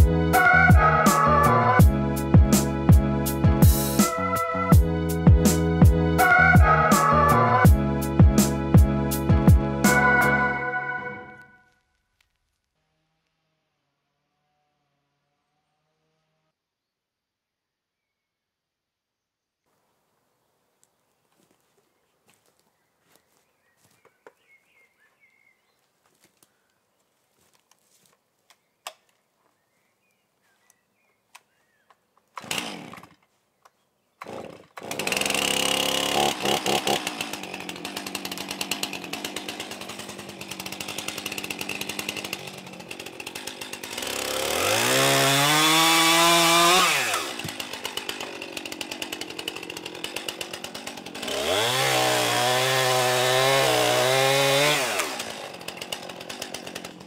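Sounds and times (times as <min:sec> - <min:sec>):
chainsaw running and revving: 0:00.0 - 0:10.8, 0:12.7 - 0:16.6, 0:32.4 - 0:33.2, 0:34.2 - 0:57.0.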